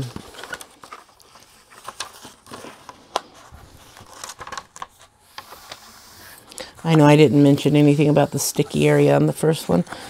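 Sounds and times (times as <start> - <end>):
canvas and plastic sheet crinkling: 0.0 - 5.0.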